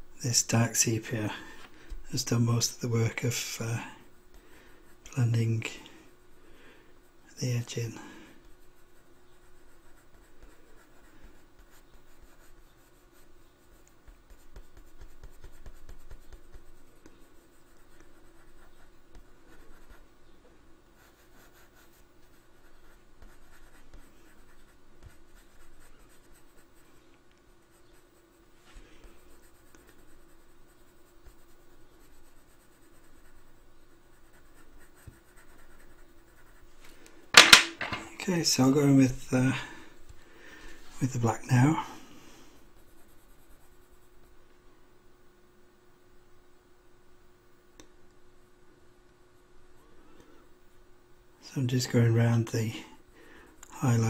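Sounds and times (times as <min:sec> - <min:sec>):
faint steady hum: 0:00.0 - 0:54.0
colored pencil scratching on paper: 0:08.4 - 0:20.0, 0:21.0 - 0:27.0, 0:27.6 - 0:28.4, 0:29.0 - 0:36.7, 0:42.8 - 0:44.3.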